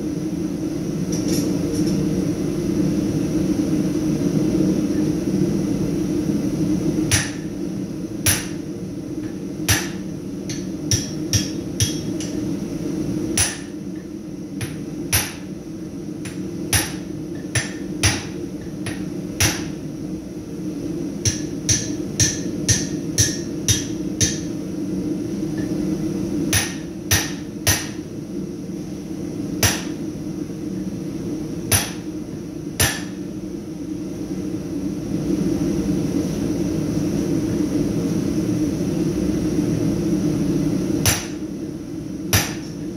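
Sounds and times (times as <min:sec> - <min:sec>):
hammer striking metal on anvil: 0:07.1 - 0:07.5, 0:08.2 - 0:08.6, 0:09.7 - 0:12.4, 0:13.4 - 0:13.8, 0:14.6 - 0:15.5, 0:16.2 - 0:19.8, 0:21.2 - 0:24.5, 0:26.5 - 0:28.0, 0:29.6 - 0:30.0, 0:31.7 - 0:32.1, 0:32.8 - 0:33.2, 0:41.0 - 0:41.4, 0:42.3 - 0:42.8.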